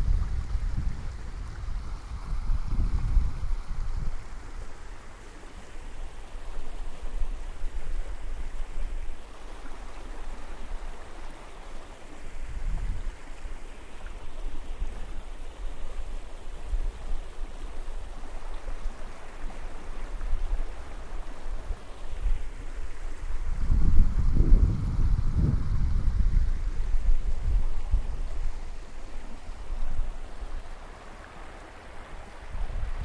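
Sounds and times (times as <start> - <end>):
wind buffeting microphone: 0.0 - 4.4, 12.4 - 13.2, 21.6 - 31.0, 32.3 - 33.0
ocean surf washing on beach: 0.0 - 33.0.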